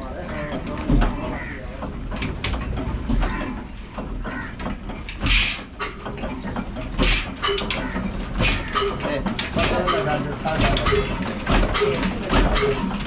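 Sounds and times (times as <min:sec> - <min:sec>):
mechanical clatter: 0:00.0 - 0:13.0
stationary diesel engine puffing: 0:05.2 - 0:06.0, 0:07.0 - 0:07.5, 0:08.3 - 0:08.8.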